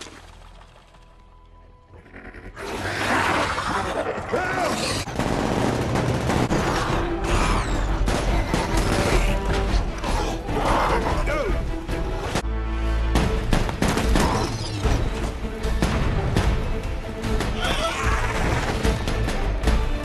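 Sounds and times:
background score music: 0.0s - 20.0s
gunshots: 4.8s - 9.7s, 13.2s - 14.7s.

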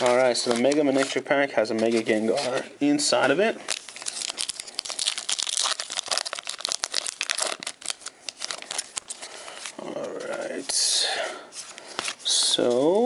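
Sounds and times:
foil wrapper crinkling and tearing: 3.7s - 10.2s.

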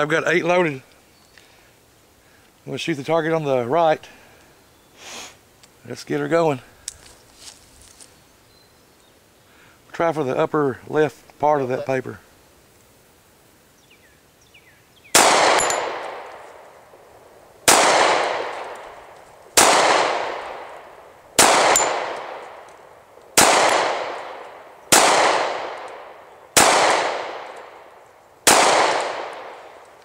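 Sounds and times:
pistol shots with long echo: 15.1s - 16.4s, 17.6s - 22.7s, 23.4s - 29.8s.

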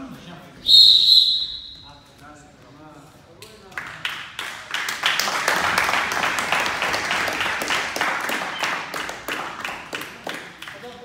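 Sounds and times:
spectators applauding: 3.8s - 11.0s.

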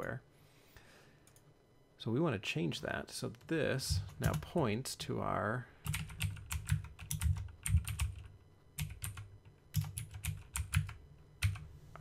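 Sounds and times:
typing on computer keyboard: 5.8s - 11.7s.

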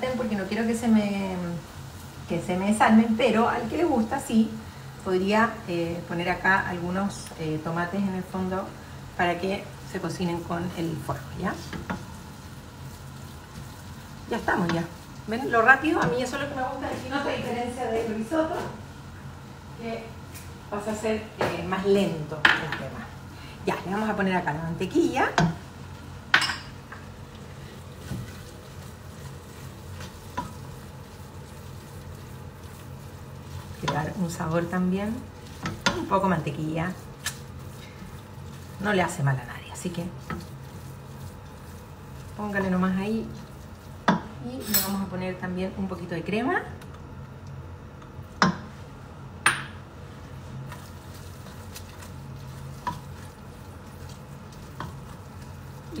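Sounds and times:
steady low hum: 0.0s - 56.0s
stirring thick grain: 27.3s - 44.3s, 50.3s - 56.0s
spatula scraping in pot: 27.5s - 45.0s, 50.5s - 56.0s.

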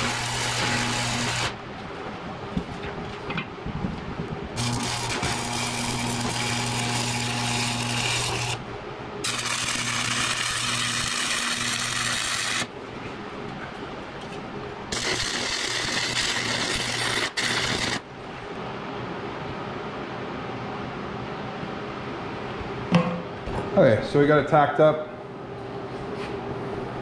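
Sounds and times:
arc welding crackling sizzle: 0.0s - 3.4s, 4.5s - 12.8s, 14.9s - 18.1s.

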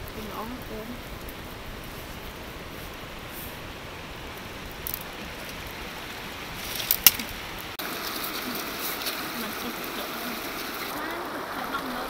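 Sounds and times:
river running over stones: 0.0s - 12.0s.

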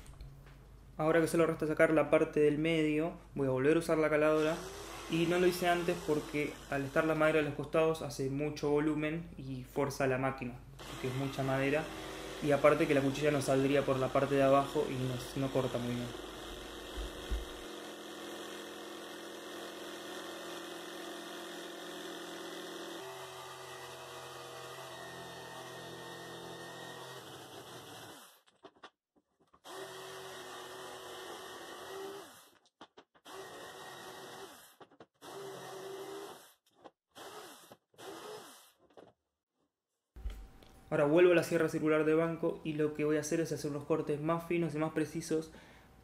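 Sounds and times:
electric jigsaw cutting wood: 4.3s - 7.5s, 10.8s - 28.5s, 29.6s - 32.6s, 33.2s - 38.8s.

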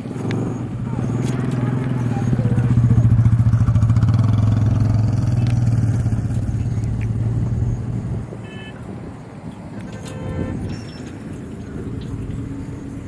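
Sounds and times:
engine running with low hum: 0.0s - 13.0s.

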